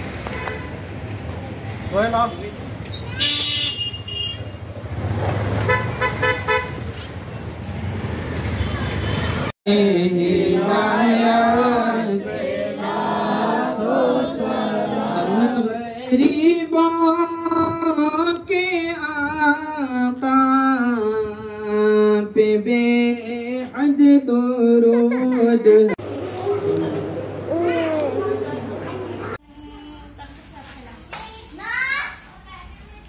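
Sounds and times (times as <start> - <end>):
person singing a slow chant: 9.7 - 25.0.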